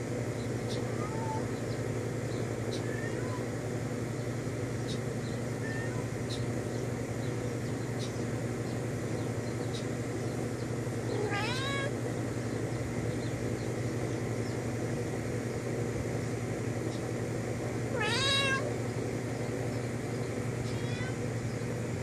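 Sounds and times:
steady low hum: 0.0s - 22.0s
cat meowing: 0.7s - 1.5s, 2.7s - 3.5s, 5.6s - 6.1s, 11.1s - 12.0s, 17.9s - 18.7s, 20.6s - 21.2s.

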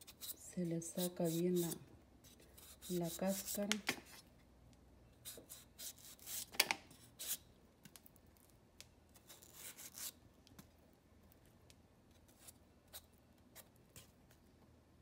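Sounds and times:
knife scraping mango skin: 0.0s - 4.2s, 5.2s - 7.5s, 9.1s - 10.2s.

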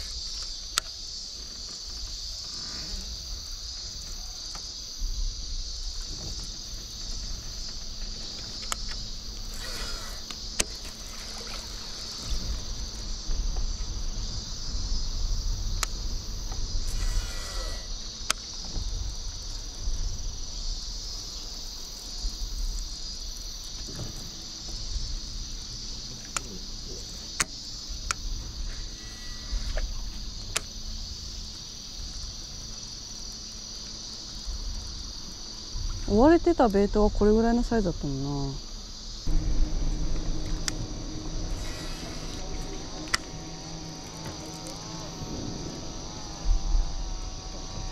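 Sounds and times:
high-pitched insect chorus: 0.0s - 47.9s
low rumble: 38.8s - 47.9s.

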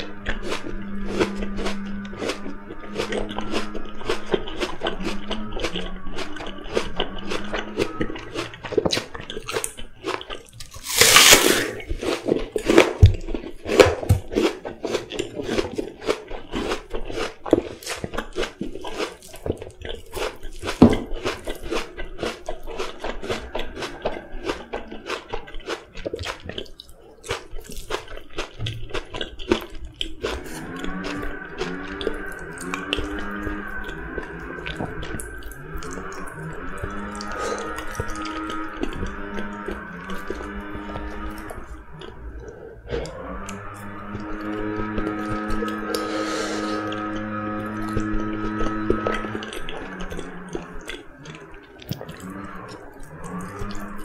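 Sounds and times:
apple crunching: 0.0s - 54.0s.

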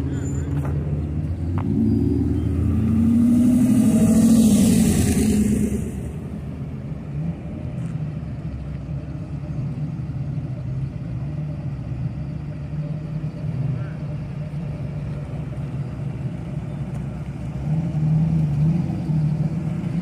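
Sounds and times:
hot rod engine passing: 0.0s - 7.6s
cars idling rumble: 0.0s - 20.0s.

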